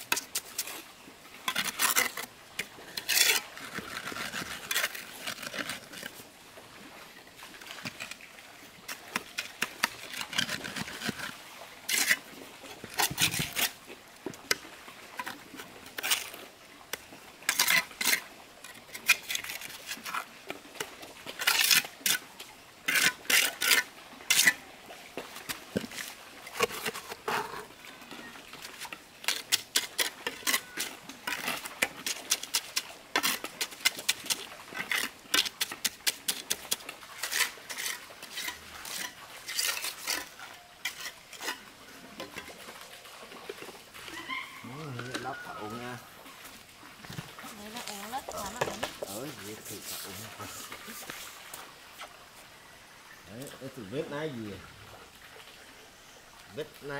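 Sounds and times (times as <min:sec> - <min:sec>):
trowel scraping mortar: 0:00.0 - 0:00.9, 0:01.5 - 0:06.2, 0:08.9 - 0:13.8, 0:17.5 - 0:20.3, 0:21.3 - 0:24.6, 0:28.6 - 0:42.6, 0:47.6 - 0:51.4.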